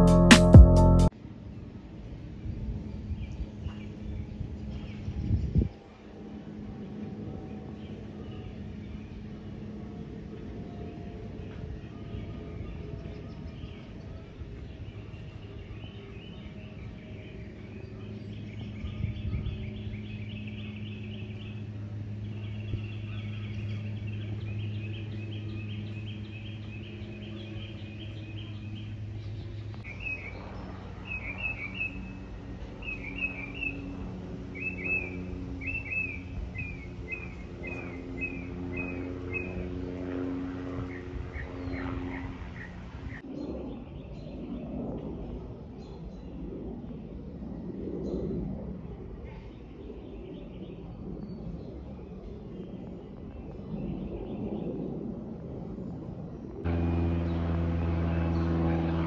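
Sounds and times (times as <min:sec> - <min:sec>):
steady low hum: 0:00.0 - 0:50.1, 0:50.8 - 0:59.0
songbirds singing: 0:02.4 - 0:06.0, 0:07.1 - 0:47.0.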